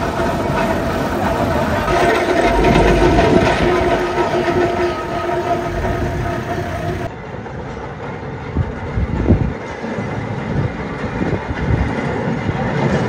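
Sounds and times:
steady whistle-like tone: 0.0s - 7.1s
steam traction engines rumbling: 0.0s - 13.0s.

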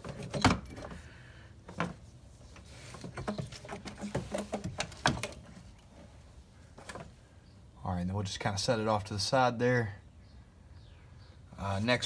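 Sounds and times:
parts rubbing: 0.0s - 7.2s.

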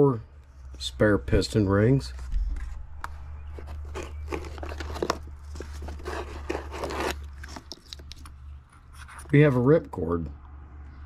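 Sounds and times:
steady low hum: 0.0s - 11.0s
cardboard box rustling and scraping: 2.1s - 8.0s.

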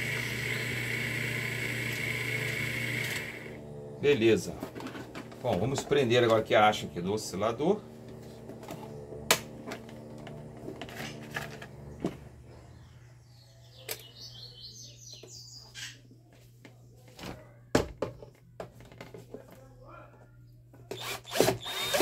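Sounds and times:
steady low hum: 0.0s - 13.6s.

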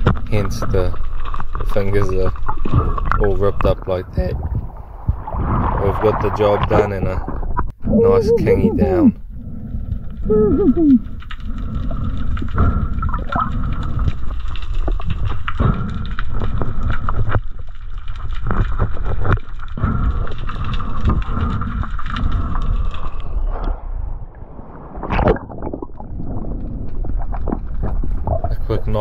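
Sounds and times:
muffled underwater rumble: 0.0s - 29.0s
knocks and gurgles on camera housing: 25.1s - 29.0s.

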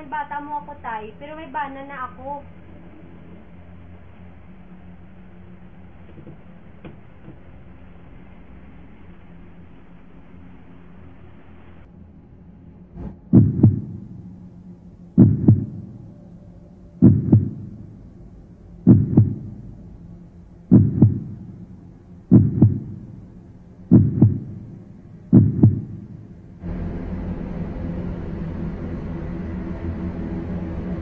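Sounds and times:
low steady hum: 0.0s - 31.0s
heartbeat thumps: 13.0s - 16.3s, 16.9s - 18.2s, 18.8s - 20.0s, 20.6s - 26.6s.

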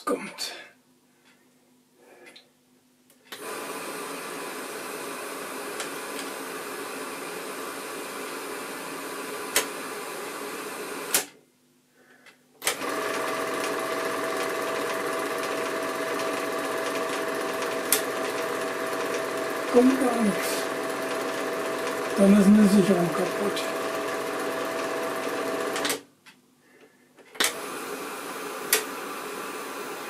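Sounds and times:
film projector running: 3.3s - 11.3s, 12.6s - 26.0s, 27.4s - 30.0s.

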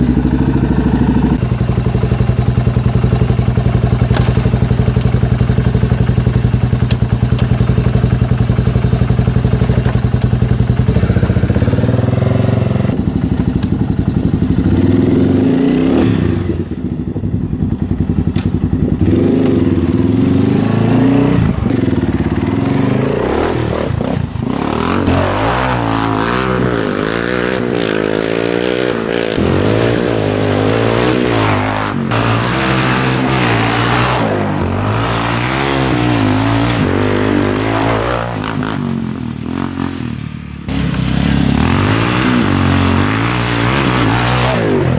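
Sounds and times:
quad engine idling and revving: 0.0s - 44.9s.

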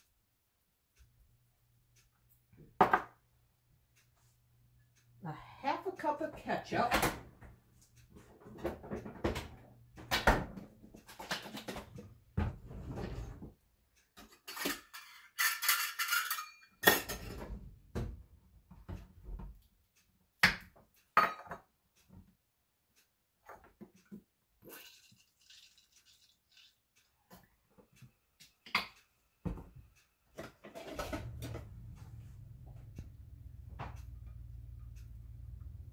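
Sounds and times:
kitchen knocks and clinks: 2.8s - 3.2s, 14.2s - 18.2s, 20.4s - 21.7s, 30.4s - 31.8s.

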